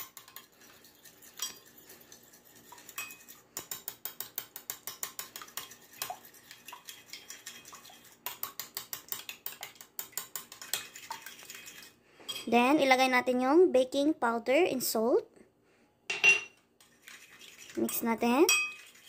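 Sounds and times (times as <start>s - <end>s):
spoon clinking against glass bowl: 0.0s - 1.7s, 2.7s - 6.2s, 17.9s - 18.9s.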